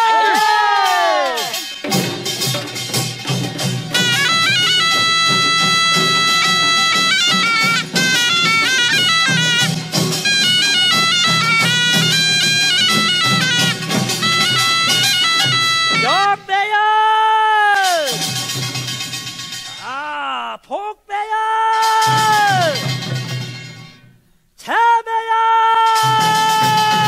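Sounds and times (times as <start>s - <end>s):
percussion beat: 0.0s - 16.6s, 17.7s - 20.4s, 21.7s - 24.1s, 25.8s - 27.0s
shawm playing a melody: 1.5s - 16.4s.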